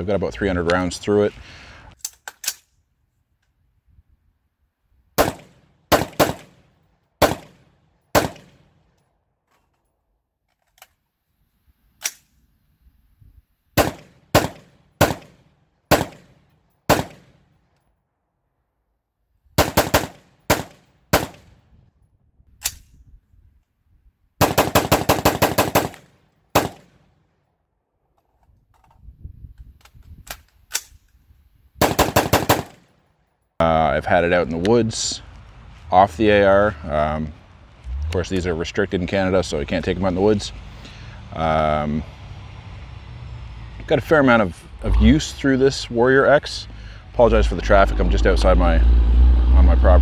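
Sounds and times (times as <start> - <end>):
rifle gunshots: 5.2 - 8.8, 13.8 - 17.4, 19.6 - 21.6, 24.4 - 27.1, 31.8 - 32.9.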